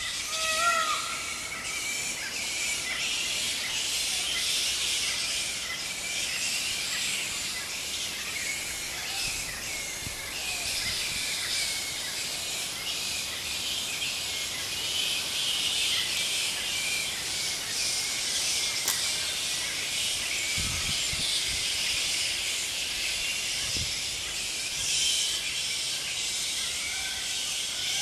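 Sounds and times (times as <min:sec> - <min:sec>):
high-pitched outdoor hiss: 0:00.0 - 0:28.0
sharp click: 0:18.8 - 0:19.1.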